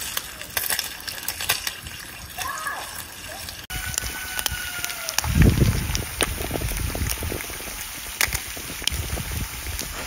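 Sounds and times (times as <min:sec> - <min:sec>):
meat sizzling in a pan: 0:03.7 - 0:10.0.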